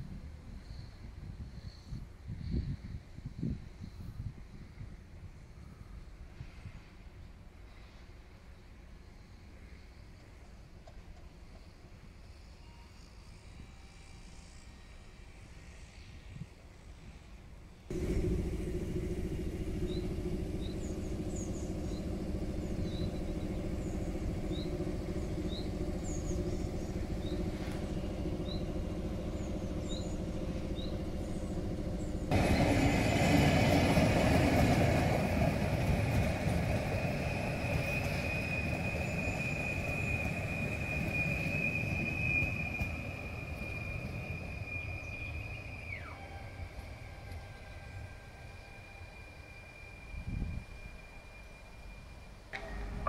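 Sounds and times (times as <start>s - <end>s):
electric train rolling past: 3.0s - 53.0s
wheel-on-rail noise: 17.9s - 53.0s
high-pitched wheel squeal: 36.8s - 52.3s.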